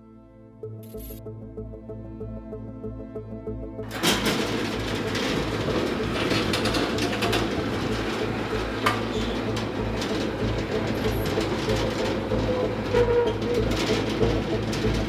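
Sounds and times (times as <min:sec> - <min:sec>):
steady low hum: 0:00.6 - 0:15.0
train rattling rumble: 0:03.8 - 0:15.0
train wheel clacks: 0:03.9 - 0:15.0.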